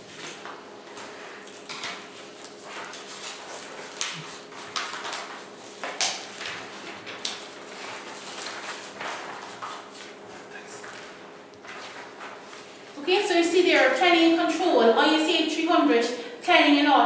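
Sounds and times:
papers rustling: 0.0s - 13.0s.

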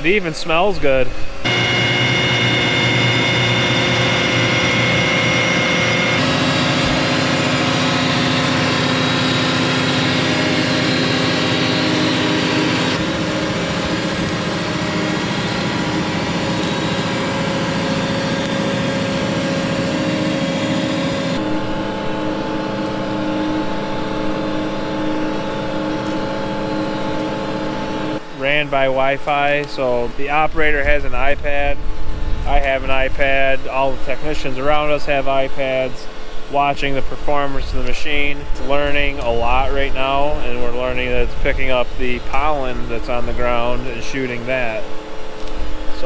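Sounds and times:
laser weeder engine drone: 0.0s - 46.0s
steady held tones: 0.0s - 46.0s.

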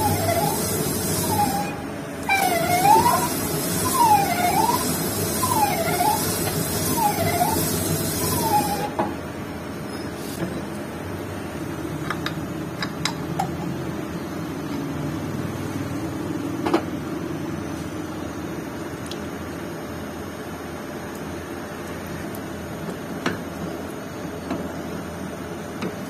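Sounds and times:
boring cut squealing: 0.0s - 9.0s
lathe humming: 0.0s - 9.0s.

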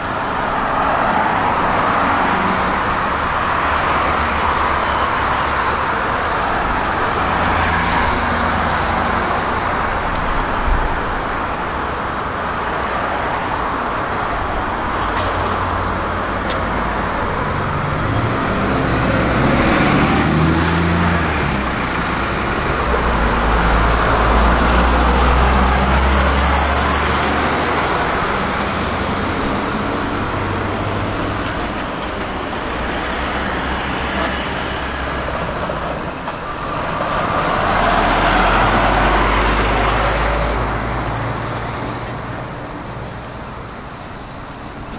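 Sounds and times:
road traffic passing: 0.0s - 44.9s
heavy vehicle engine rumble: 13.7s - 44.9s.

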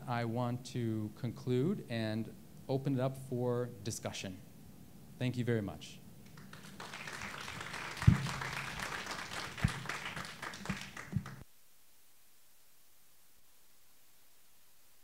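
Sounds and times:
audience applauding: 6.3s - 11.4s
dull thumps: 8.0s - 8.4s, 9.6s - 9.9s.

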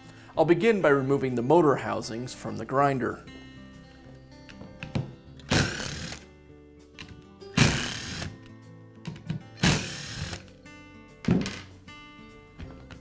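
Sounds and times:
background music: 0.0s - 13.0s
cordless drill running: 5.5s - 6.2s, 7.6s - 8.4s, 9.6s - 10.4s.

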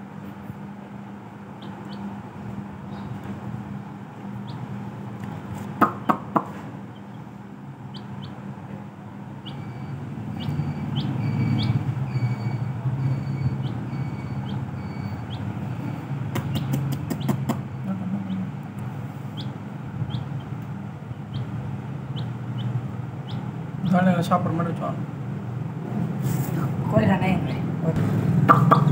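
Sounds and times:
steady low hum: 0.0s - 28.9s
chicks peeping: 1.5s - 3.5s, 4.2s - 24.6s, 28.5s - 28.9s.

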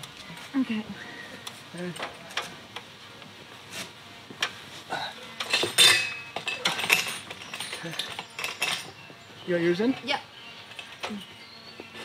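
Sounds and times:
metal clinks and knocks: 5.4s - 9.2s.

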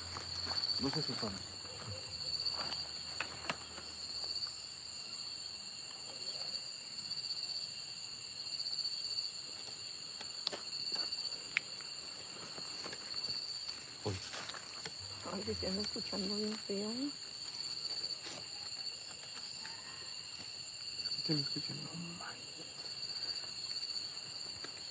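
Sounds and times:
night insects chorus: 0.0s - 24.9s.

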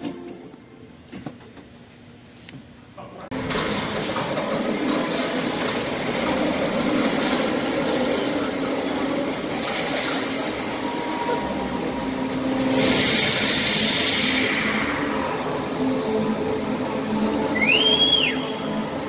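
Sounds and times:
rushing hiss: 12.5s - 15.9s.

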